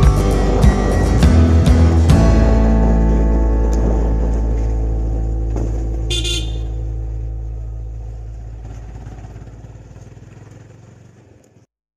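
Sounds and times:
motorcycle engine drone: 0.0 - 11.8
motorcycle horn toot: 6.0 - 6.9.

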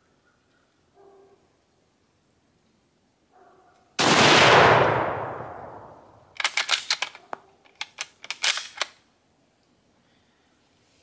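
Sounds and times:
rifle shot: 4.0 - 7.0
rifle bolt metallic clacks: 6.3 - 9.0.

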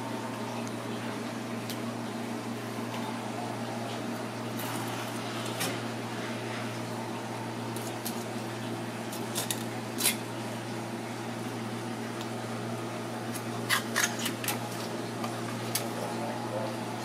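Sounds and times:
steady machine hum: 0.0 - 17.0
knife crunching through fish bones: 13.3 - 14.6.

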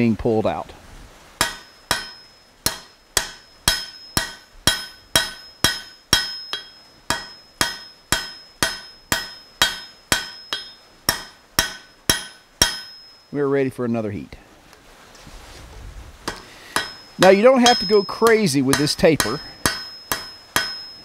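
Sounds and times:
hammer striking steel on anvil: 1.4 - 13.3, 16.2 - 21.0.

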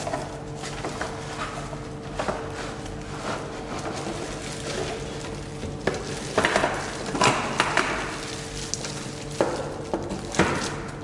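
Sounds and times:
plastic wrap crackling: 3.6 - 11.0.

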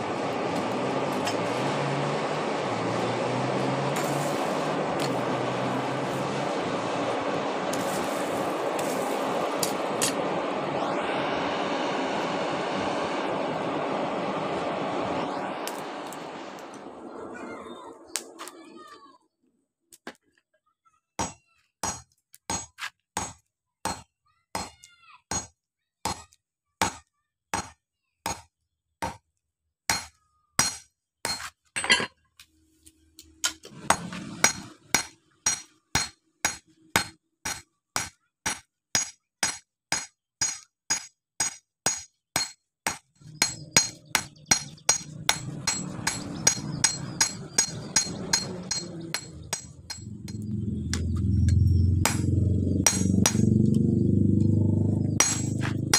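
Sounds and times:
hammer striking metal on anvil: 21.2 - 24.0, 24.6 - 25.5, 29.9 - 32.1, 33.4 - 53.7, 55.2 - 55.9.

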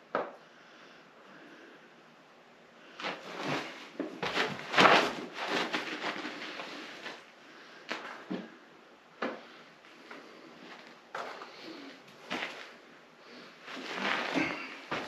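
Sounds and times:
scuffs and rustles: 2.9 - 8.6, 9.2 - 15.0.

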